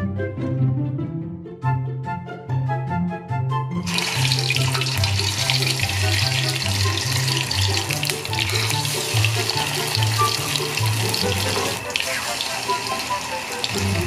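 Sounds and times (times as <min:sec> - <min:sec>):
background music with bass: 0:00.0 - 0:11.9, 0:13.7 - 0:14.0
hot fat sizzling in a pan: 0:03.9 - 0:14.0.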